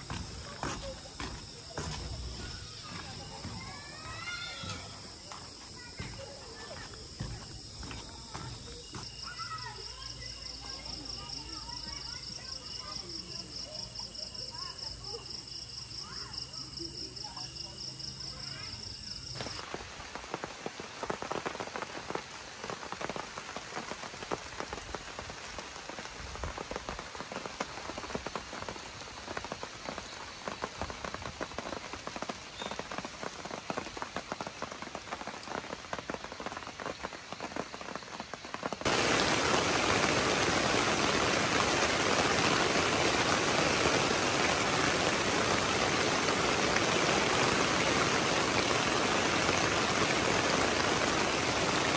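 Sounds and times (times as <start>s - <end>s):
running water rushing: 0.0s - 10.3s, 19.4s - 51.9s
rain pattering: 0.0s - 51.9s.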